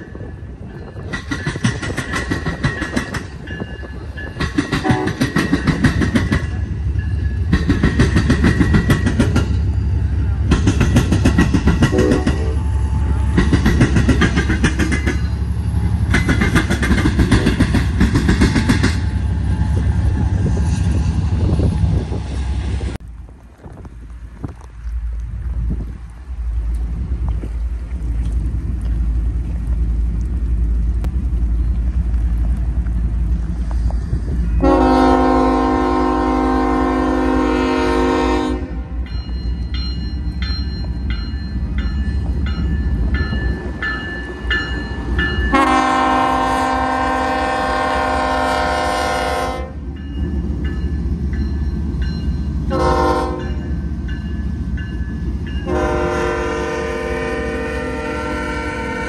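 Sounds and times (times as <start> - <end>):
diesel locomotive engine rumble: 0.0 - 59.0
train air horn blasts: 4.8 - 5.4, 11.8 - 13.4, 34.5 - 39.0, 45.5 - 49.8, 52.7 - 53.7, 55.6 - 59.0.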